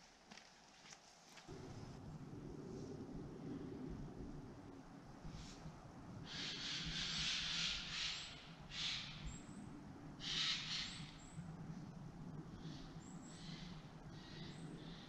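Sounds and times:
rustling hiss: 0.1s - 8.1s.

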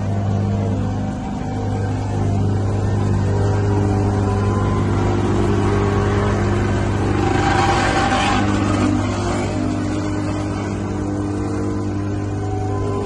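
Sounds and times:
paving machinery engines: 0.0s - 13.0s
road roller diesel engine: 0.0s - 13.0s.

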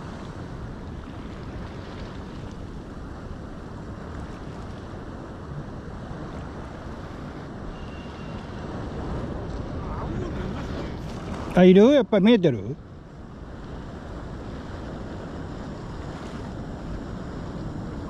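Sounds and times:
sea surf: 0.0s - 18.0s
wind buffeting microphone: 12.8s - 18.0s.

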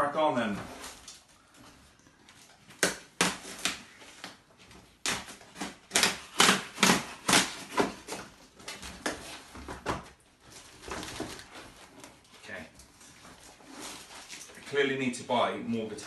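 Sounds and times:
packing tape and cardboard ripping: 2.7s - 12.1s.

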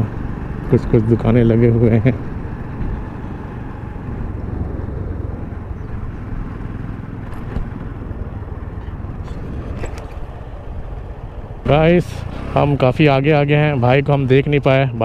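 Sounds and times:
motorcycle engine running: 0.0s - 15.0s
wind rushing across microphone: 2.3s - 12.5s.

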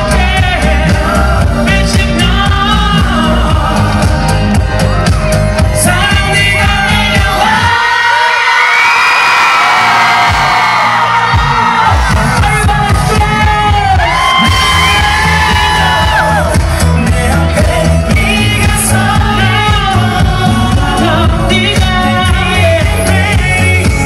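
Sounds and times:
man singing into microphone: 0.0s - 4.9s, 5.6s - 8.8s, 11.2s - 24.0s
amplified band accompaniment: 0.0s - 24.0s
crowd yelling and whooping: 6.8s - 23.3s.

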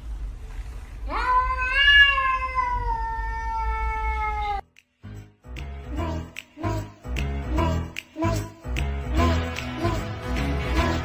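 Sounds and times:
cat meowing: 1.1s - 4.6s.

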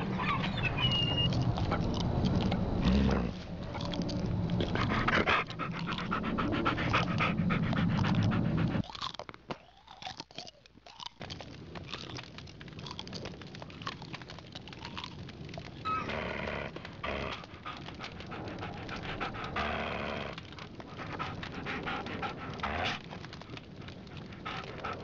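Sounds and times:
panting: 0.0s - 8.8s, 16.7s - 25.0s
people growling like dogs: 0.0s - 8.8s, 15.8s - 25.0s.

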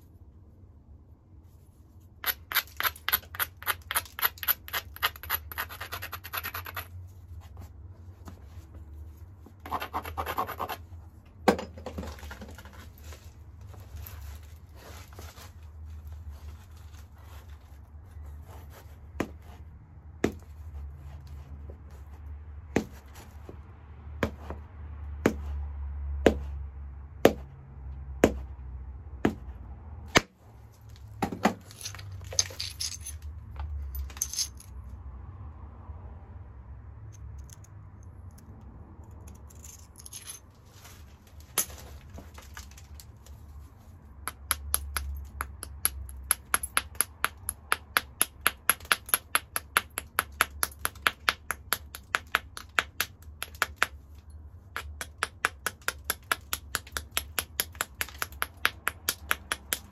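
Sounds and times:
stone clicking on stone: 2.2s - 6.9s, 54.7s - 59.9s
stone scraping: 2.2s - 7.0s.

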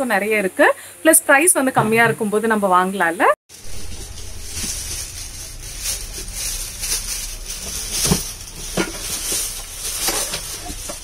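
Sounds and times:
low hum and hiss: 3.5s - 11.0s.

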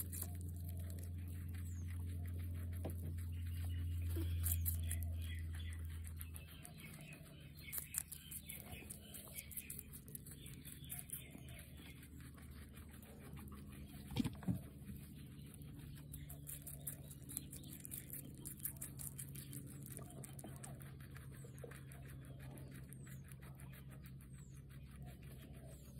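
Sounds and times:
guinea pig crunching pepper: 0.0s - 25.9s.

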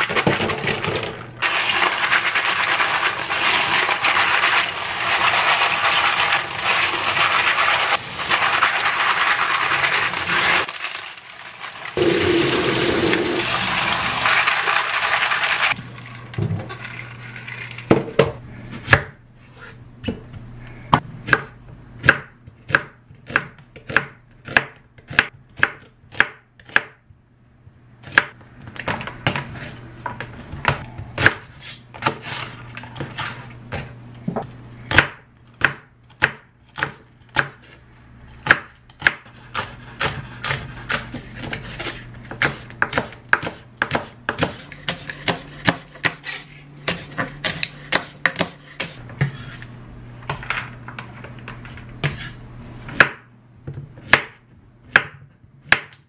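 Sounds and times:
knife chopping on wooden board: 21.0s - 27.0s, 34.4s - 37.8s, 38.4s - 49.5s, 52.9s - 56.0s.

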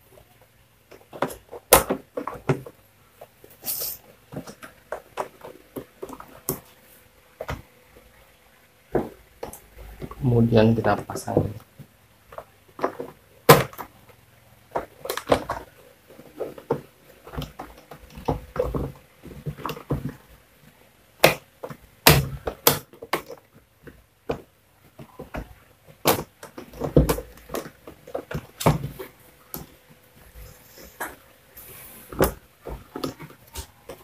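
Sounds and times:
plastic parts knocking and clicking: 0.8s - 3.3s, 8.9s - 29.8s, 32.1s - 34.0s.

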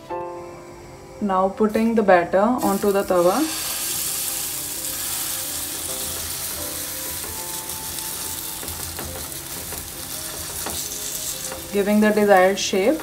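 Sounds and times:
batter sizzling in hot oil: 2.6s - 13.0s.

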